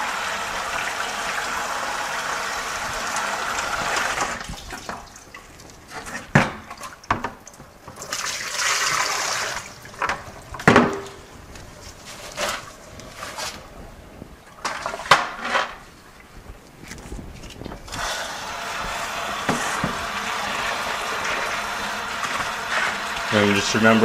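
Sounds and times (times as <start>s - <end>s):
hose water splashing into bucket: 0.0s - 11.2s, 14.6s - 15.8s, 17.9s - 24.0s
bucket knocks and clunks: 5.9s - 11.2s, 14.6s - 15.8s, 19.3s - 21.6s.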